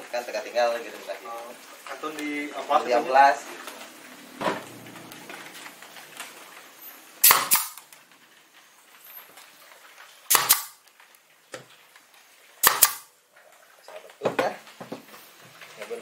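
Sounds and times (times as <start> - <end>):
pneumatic nail gun firing into wood: 7.2 - 7.8, 10.3 - 10.8, 12.6 - 13.1.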